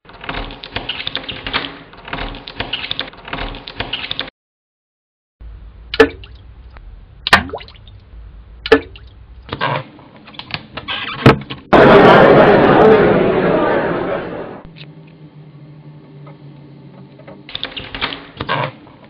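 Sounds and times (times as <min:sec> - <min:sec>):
water drops plopping into water: 0:05.9 - 0:06.4, 0:07.3 - 0:08.0, 0:08.6 - 0:09.2
low hum: 0:14.6 - 0:17.5.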